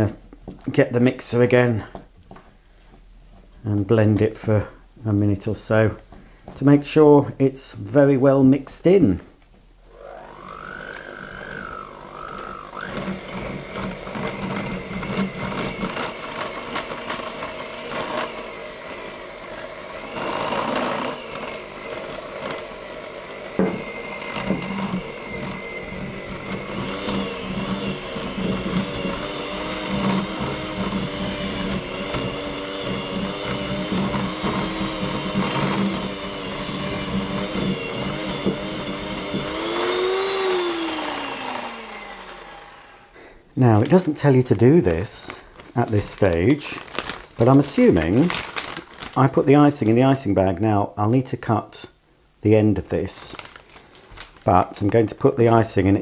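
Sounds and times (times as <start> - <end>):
electric hand mixer whisking: 9.9 - 44.1, 44.9 - 49.5.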